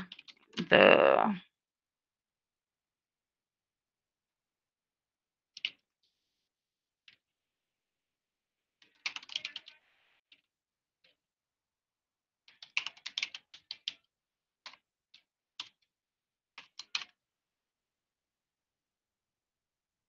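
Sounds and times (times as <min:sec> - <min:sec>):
computer keyboard typing: 0:00.0 - 0:00.5, 0:05.5 - 0:05.9, 0:08.8 - 0:10.4, 0:12.5 - 0:15.9, 0:16.6 - 0:17.2.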